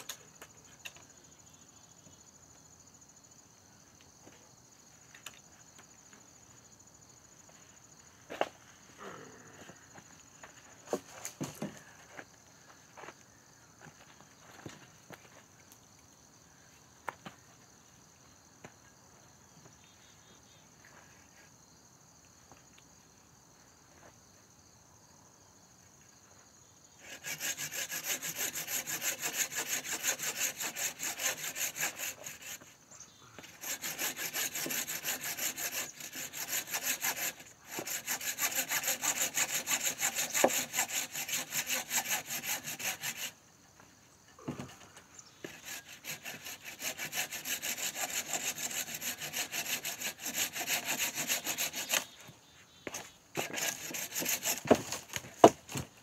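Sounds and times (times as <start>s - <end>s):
handsaw cutting log: 27.0s - 32.8s, 33.4s - 43.4s, 45.4s - 52.2s, 52.9s - 55.8s.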